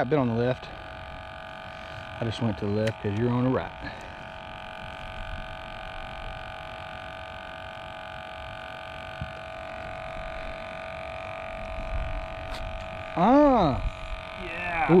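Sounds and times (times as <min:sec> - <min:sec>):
electric hum: 0:00.0 - 0:15.0.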